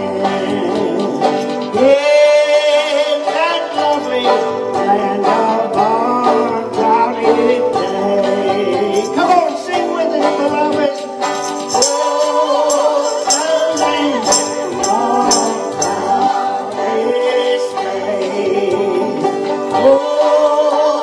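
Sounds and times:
man and woman singing: 0.0 - 21.0
strummed banjo: 0.0 - 21.0
tambourine jingling: 0.9 - 1.8, 3.8 - 4.8, 8.8 - 9.8, 10.9 - 16.8.

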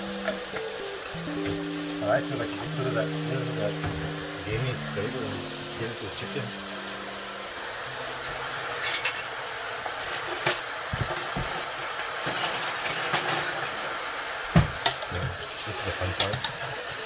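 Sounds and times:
meat sizzling in a pot: 0.0 - 17.0.

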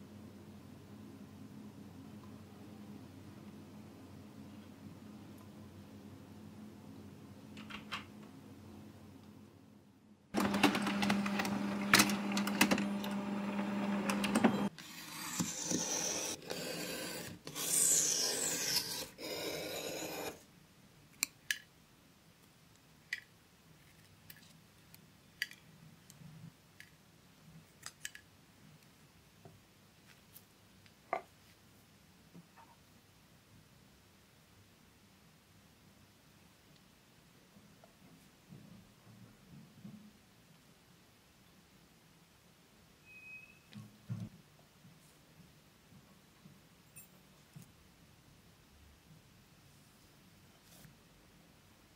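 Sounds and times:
printer motor whirring: 10.4 - 14.7.

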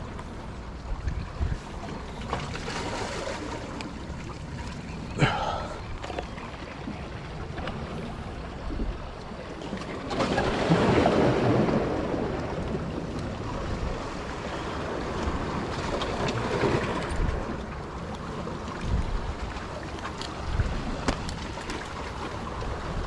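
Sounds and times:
wind on microphone: 0.0 - 2.2
sea waves washing ashore: 0.0 - 23.0.

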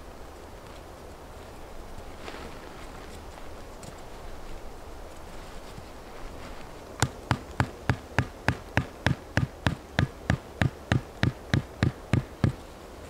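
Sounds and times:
hatchet hammering wooden stake: 7.0 - 12.6.

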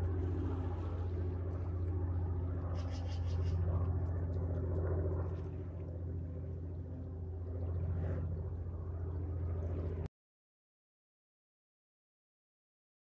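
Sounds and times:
low engine hum: 0.0 - 10.1.

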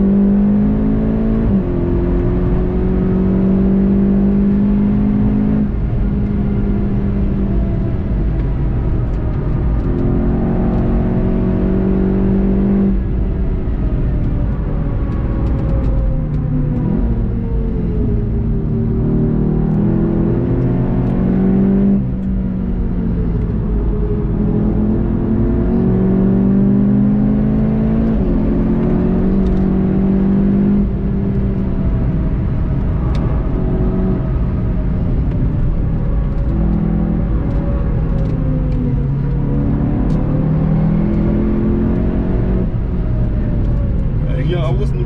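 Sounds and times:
car engine accelerating: 0.0 - 45.0.

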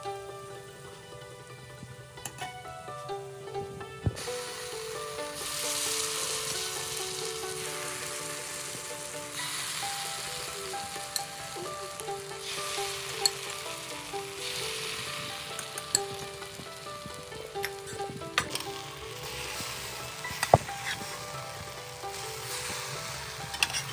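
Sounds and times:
filling sizzling in hot oil: 0.0 - 23.9
metal spoon clicking on pan: 10.3 - 13.6.

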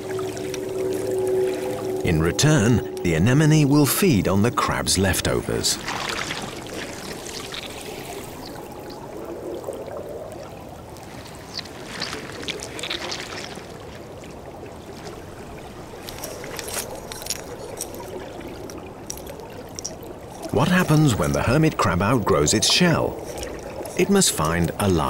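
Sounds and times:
underwater watery wash: 0.0 - 25.0
small clicks and crackles: 6.2 - 9.1, 10.2 - 14.0, 15.9 - 20.6.

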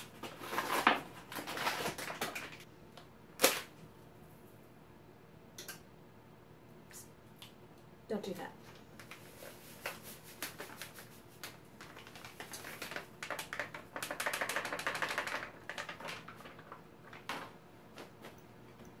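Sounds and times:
plastic bag crinkling: 0.2 - 2.7, 9.0 - 18.3.

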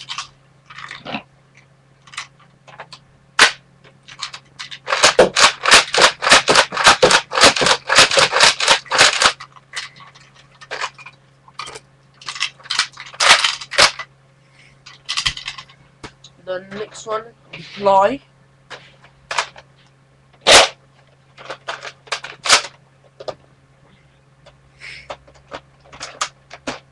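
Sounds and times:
toy blaster clacks: 3.4 - 9.9, 11.6 - 14.0.

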